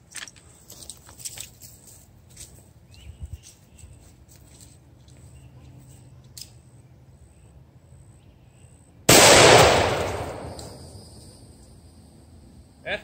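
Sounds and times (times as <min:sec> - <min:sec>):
rifle shot: 0:09.1 - 0:11.0
high insect or bird tone: 0:10.2 - 0:13.0.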